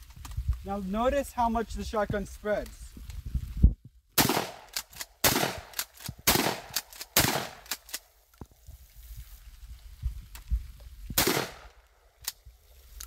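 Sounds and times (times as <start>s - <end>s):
shotgun shots with echo: 4.2s - 7.8s, 11.2s - 11.7s.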